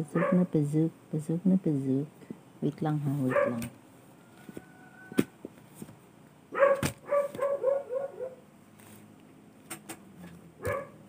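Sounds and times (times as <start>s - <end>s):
small dog yapping: 3.3s - 3.7s, 6.6s - 8.4s, 10.6s - 11.0s.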